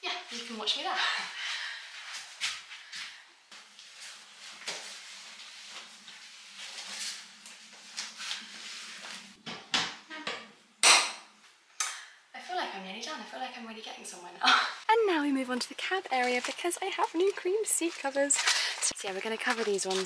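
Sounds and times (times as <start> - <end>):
fabric rustling: 15.8 - 20.0.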